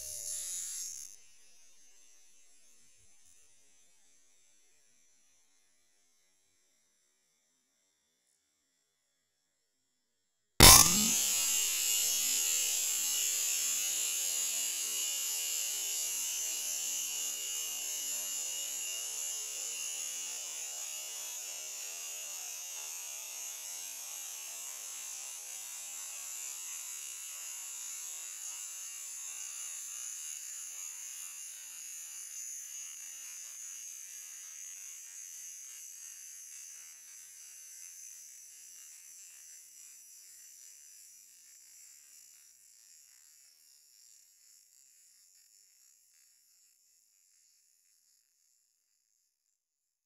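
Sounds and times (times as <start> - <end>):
high-pitched gas hiss: 10.6 - 11.7.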